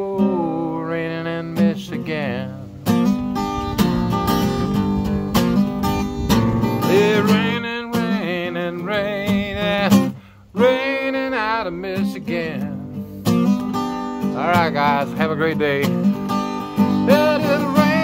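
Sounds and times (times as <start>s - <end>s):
man singing: 0.0s - 2.7s, 6.8s - 13.0s, 14.2s - 16.1s, 16.8s - 18.0s
acoustic guitar strumming: 0.0s - 18.0s.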